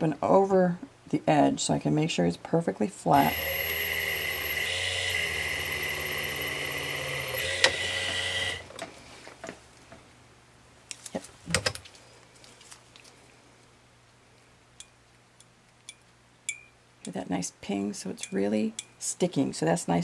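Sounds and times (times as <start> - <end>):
sharpener motor whine: 3.2 - 8.6.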